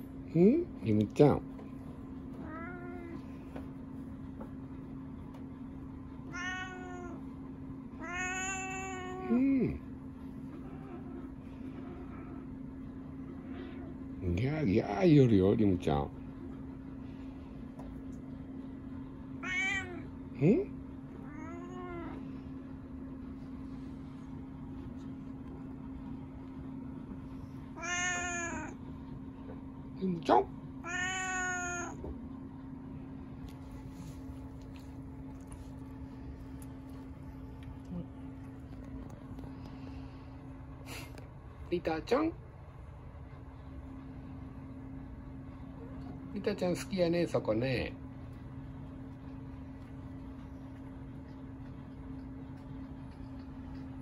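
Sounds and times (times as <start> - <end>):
low mechanical hum: 0.0 - 54.0
cat meowing: 2.4 - 3.2, 6.3 - 7.2, 8.0 - 9.4, 19.4 - 20.1, 21.2 - 22.2, 27.7 - 28.8, 30.8 - 32.0
faint low rumble: 32.1 - 46.3, 48.0 - 54.0.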